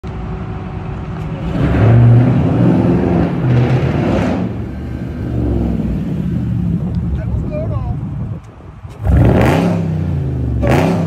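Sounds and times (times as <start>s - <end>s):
car engine revving: 1.2s - 7.0s, 8.9s - 11.0s.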